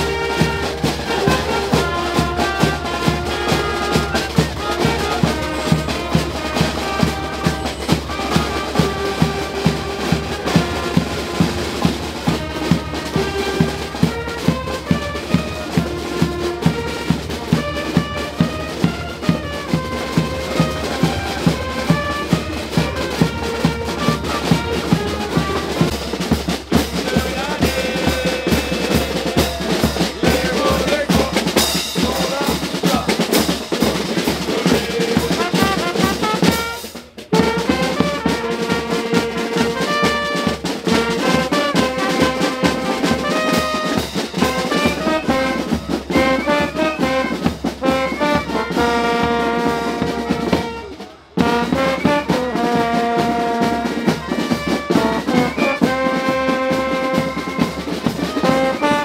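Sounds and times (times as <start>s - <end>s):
brass instruments playing a march: 0.0s - 59.0s
snare drums: 0.0s - 59.0s
cymbals clashing: 25.8s - 37.1s.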